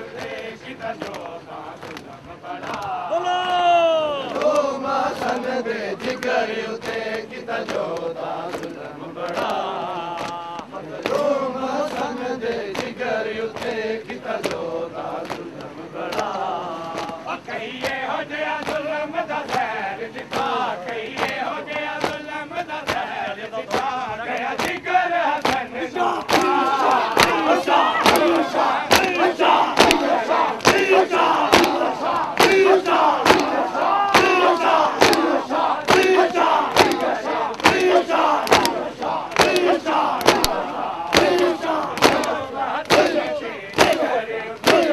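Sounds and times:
men chanting a lament: 0.0 - 44.9
chest-beating slaps: 20.3 - 22.3, 26.2 - 44.9.

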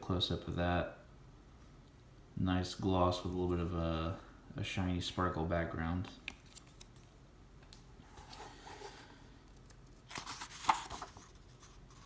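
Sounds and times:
book page turning: 6.2 - 7.1, 8.1 - 12.0
faint paper rustling: 8.1 - 12.0.

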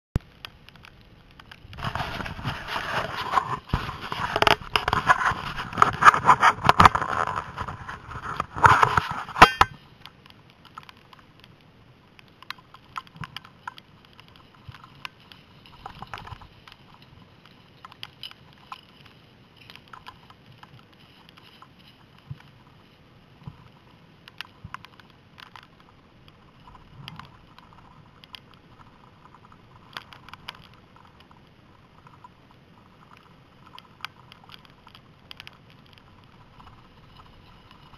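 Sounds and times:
faint ticks and rustles: 0.2 - 37.9
skis scraping over snow: 1.8 - 9.7.

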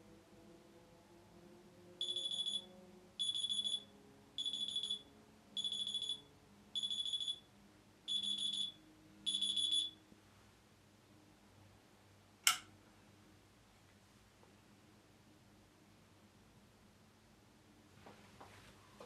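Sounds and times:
electronic alarm beeping: 2.0 - 7.5, 8.1 - 10.0.

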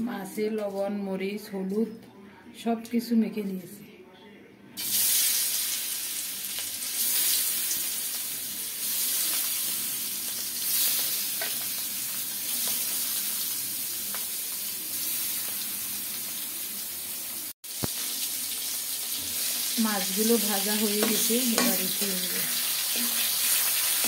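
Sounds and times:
fish frying in oil: 4.8 - 24.0.

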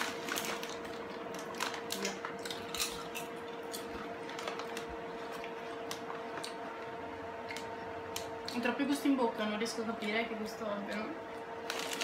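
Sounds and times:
foil snack bag crinkling: 0.0 - 6.3, 11.6 - 12.0
potato chips crunching: 0.0 - 8.7, 11.6 - 12.0
faint hum: 0.0 - 12.0.

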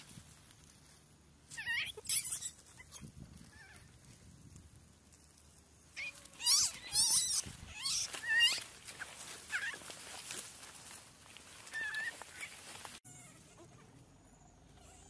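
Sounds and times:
monkey squealing: 1.5 - 3.8, 6.0 - 9.9, 11.6 - 13.8, 14.8 - 15.0.

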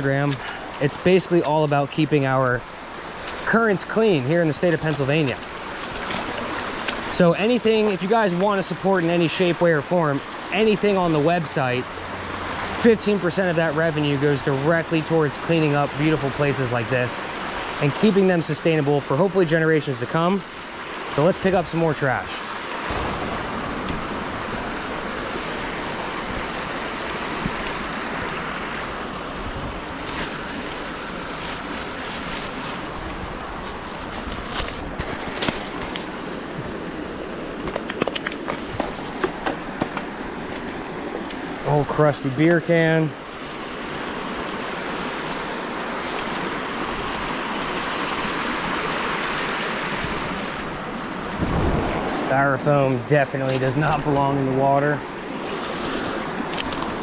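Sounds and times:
creek water rushing over rocks: 0.0 - 57.0
footsteps crunching through dry leaves: 29.8 - 36.8.

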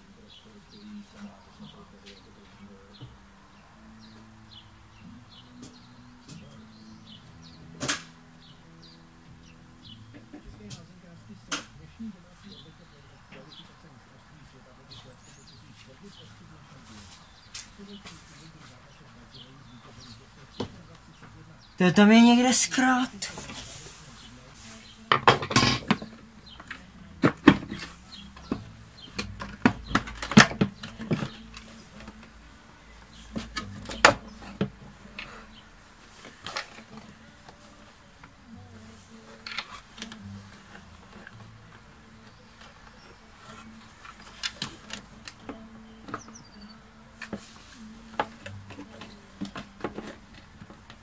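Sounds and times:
clicks and knocks of plastic parts: 25.1 - 32.3.

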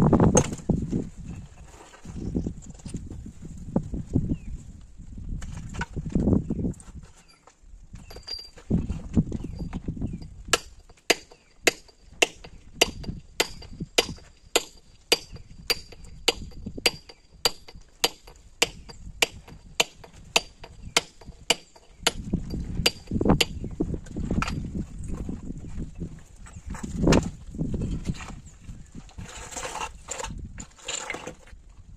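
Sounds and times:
hammer striking steel chisel: 10.5 - 23.6.

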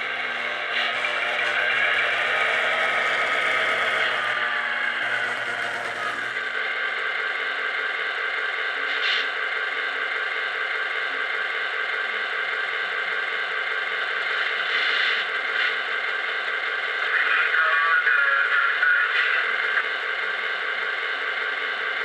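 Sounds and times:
electronic engine idle hum: 0.0 - 22.0.

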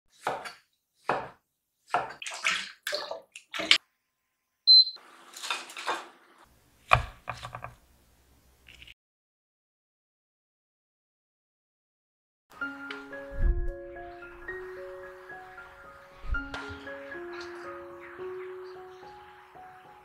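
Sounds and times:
knife chopping on wooden board: 0.1 - 2.2
hob touch control beep: 4.7 - 5.0.

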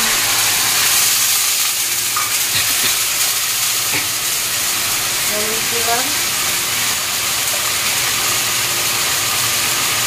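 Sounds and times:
spices sizzling in hot oil: 0.0 - 10.0.

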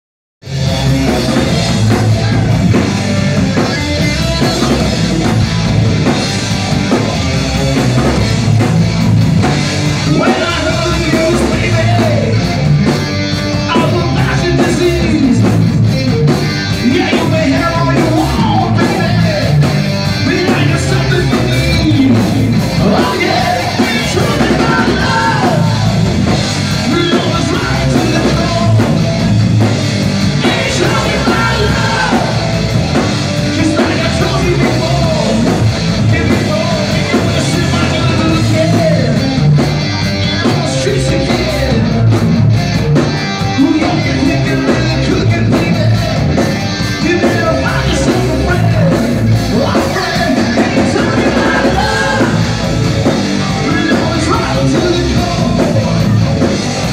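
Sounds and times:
bass guitar: 0.4 - 56.9
drum kit: 0.4 - 56.9
electric guitar: 0.4 - 56.9
man singing into microphone: 10.1 - 12.4, 13.7 - 15.4, 16.8 - 19.6, 20.2 - 25.9, 26.8 - 28.9, 30.4 - 32.4, 33.6 - 39.2, 43.6 - 46.2, 47.0 - 52.5, 53.6 - 56.2.

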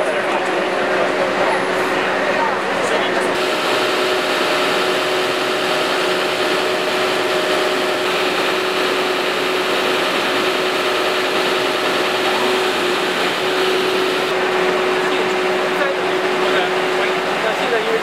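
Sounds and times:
fire truck engine idling: 0.5 - 18.0.

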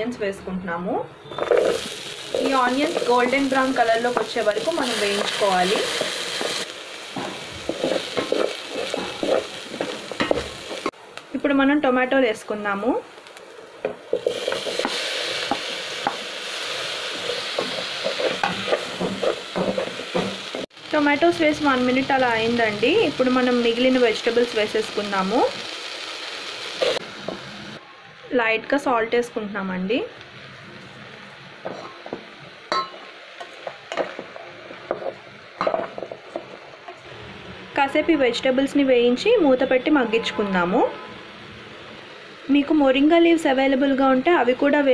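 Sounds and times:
tomatoes sizzling in pot: 1.2 - 44.9.

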